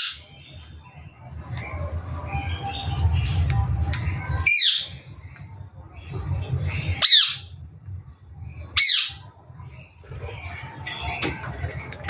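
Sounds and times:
low background rumble: 0:00.2 - 0:12.0
parakeet squawking: 0:06.8 - 0:07.6, 0:08.8 - 0:09.3.

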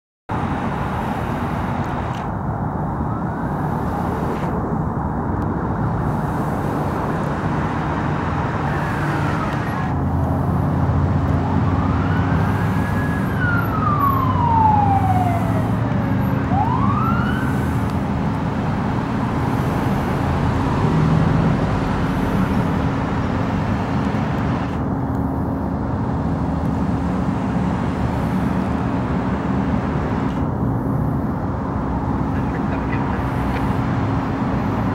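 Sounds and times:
fire engine engine hum: 0:00.3 - 0:34.9
road noise rushing: 0:00.3 - 0:34.9
fire engine siren: 0:02.6 - 0:04.7, 0:08.1 - 0:23.2.

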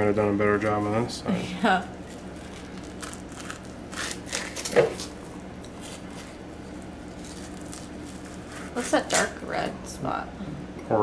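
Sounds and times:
knife scraping fish bones: 0:02.5 - 0:06.4, 0:07.1 - 0:09.3.

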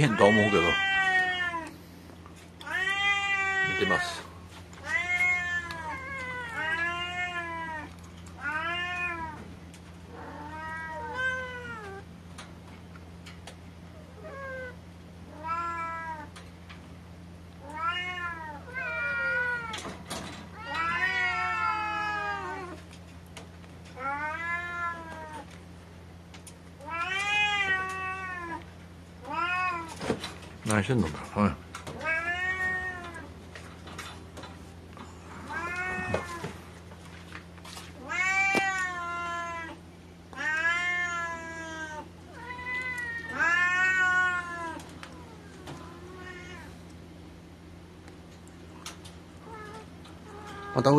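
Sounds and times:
cat meowing: 0:00.0 - 0:01.7, 0:02.6 - 0:09.4, 0:10.1 - 0:12.0, 0:14.2 - 0:16.3, 0:17.6 - 0:19.8, 0:20.5 - 0:22.8, 0:24.0 - 0:25.5, 0:26.8 - 0:30.0, 0:35.4 - 0:36.5, 0:38.0 - 0:46.8
steady low hum: 0:00.0 - 0:50.9.

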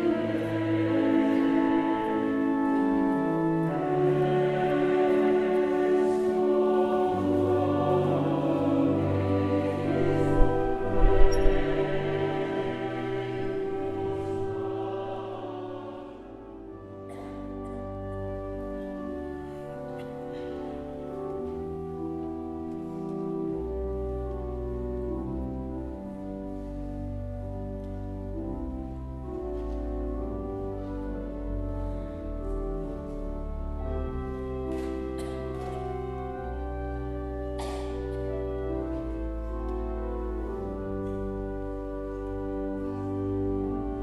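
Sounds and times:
choir singing: 0:00.0 - 0:17.3
pipe organ playing a hymn: 0:00.0 - 0:44.0.

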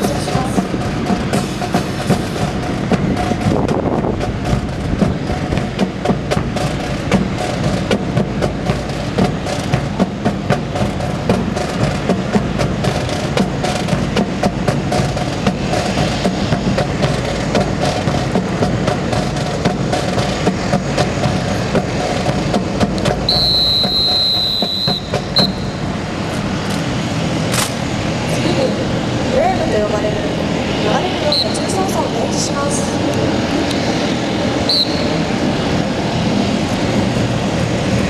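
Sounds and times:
steady mechanical hum: 0:00.0 - 0:38.0
rifles clacking: 0:27.5 - 0:27.8.

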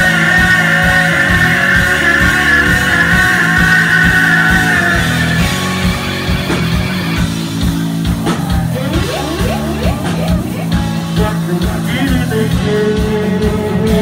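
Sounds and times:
person singing: 0:00.0 - 0:05.7, 0:08.7 - 0:14.0
bass: 0:00.0 - 0:14.0
electric guitars: 0:00.0 - 0:14.0
steady drum beat: 0:00.0 - 0:14.0.

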